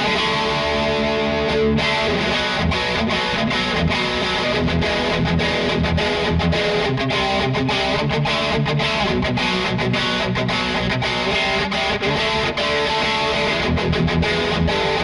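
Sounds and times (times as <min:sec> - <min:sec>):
distorted electric guitar riff: 0:00.0 - 0:15.0.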